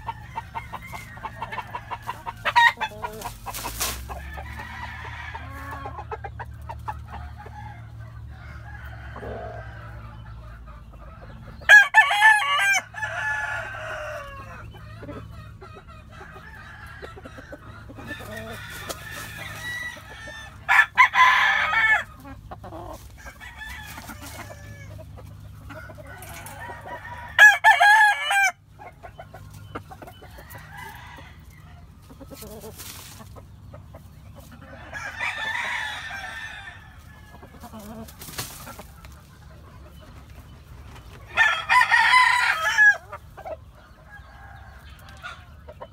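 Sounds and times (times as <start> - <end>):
soft clucking: 0.0 - 8.2
roosters crowing: 0.0 - 45.9.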